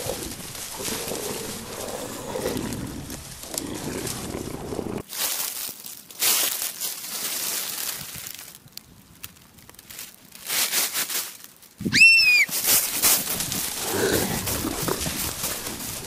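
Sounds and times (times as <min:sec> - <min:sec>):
dry leaves rustling and crunching: 0:00.0 - 0:16.0
footsteps running through leaves: 0:10.5 - 0:16.0
short shrill rising cry: 0:11.9 - 0:12.5.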